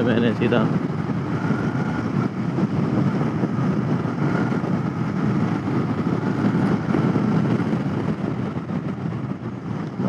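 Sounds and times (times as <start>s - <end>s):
motorcycle engine running: 0.0s - 10.0s
wind on microphone: 0.0s - 10.0s.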